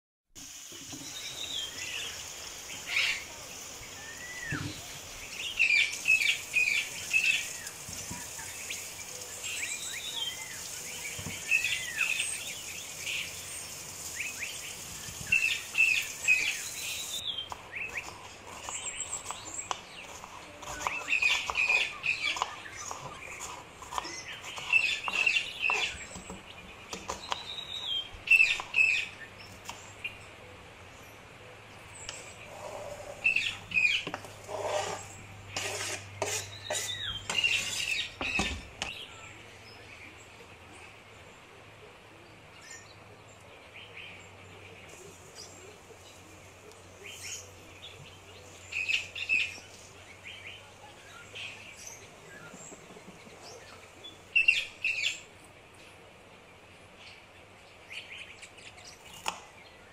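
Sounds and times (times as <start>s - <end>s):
small birds chirping: 0.4s - 41.6s, 42.2s - 59.9s.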